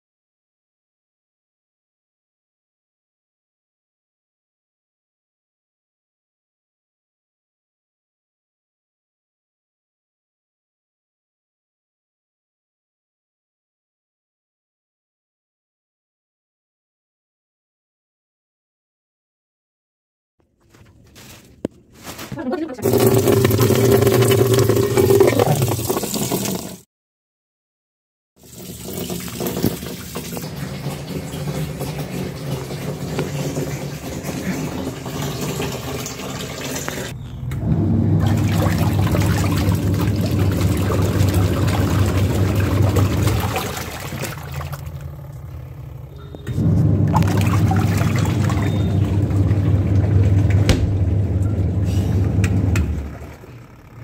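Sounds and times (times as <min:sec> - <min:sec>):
washing machine motor humming: 0:22.7 - 0:26.8, 0:28.4 - 0:54.0
water churning in tub: 0:22.8 - 0:26.8, 0:28.4 - 0:54.0.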